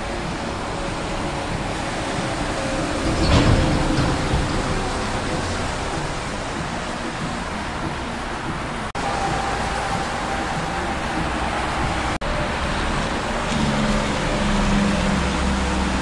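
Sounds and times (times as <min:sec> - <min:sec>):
traffic passing on wet road: 0:00.0 - 0:16.0
truck engine: 0:00.0 - 0:16.0.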